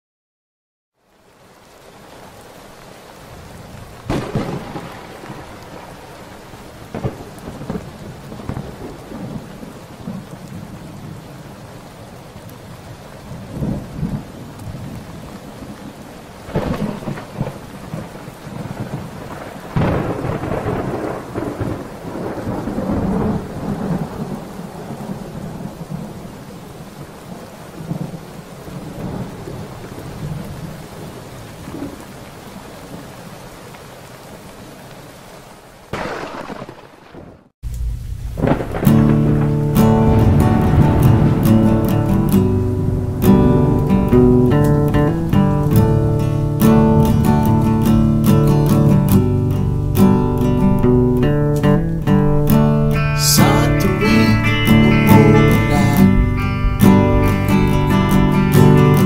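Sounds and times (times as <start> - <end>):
heavy rain: 1.0 - 59.0
thunder cracks and rumble: 4.0 - 6.0, 6.8 - 11.0, 16.5 - 26.2, 35.9 - 43.4.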